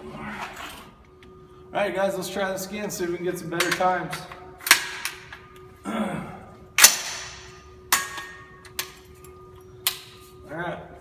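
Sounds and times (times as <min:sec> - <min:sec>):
rifle shots echoing indoors: 0:04.6 - 0:05.3, 0:06.8 - 0:08.6.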